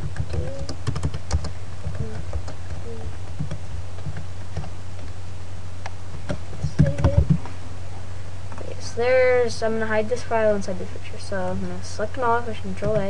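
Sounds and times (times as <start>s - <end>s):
keyboard keys clicking: 0.0s - 5.2s
steady low hum: 0.0s - 13.0s.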